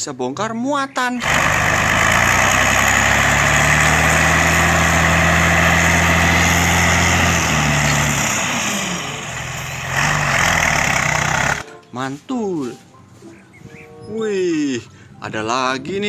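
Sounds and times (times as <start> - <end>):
diesel engine running: 1.2 - 11.6.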